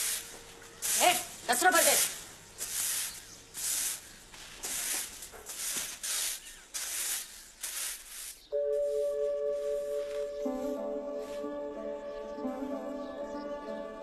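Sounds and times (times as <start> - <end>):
rustling in dry leaves: 0.0 - 11.5
soft music with held notes: 8.5 - 14.0.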